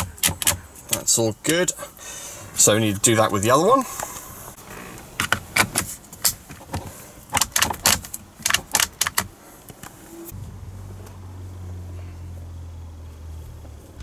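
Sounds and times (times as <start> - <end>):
plastic clicks and rattles: 5.2 - 9.9
steady low hum: 8.0 - 14.0.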